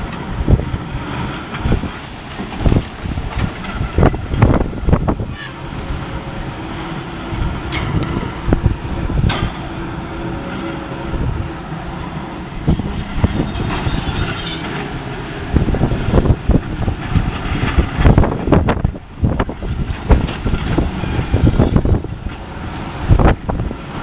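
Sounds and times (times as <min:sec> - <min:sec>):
knocks and clanks: 0:01.4 - 0:04.7, 0:09.2 - 0:09.7.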